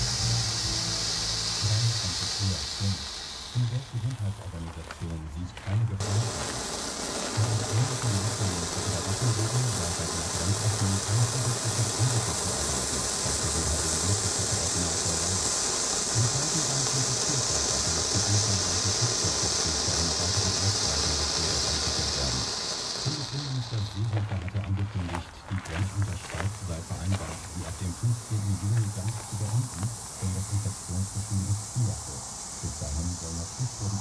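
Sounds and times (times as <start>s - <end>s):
firework hissing: 0.0s - 34.0s.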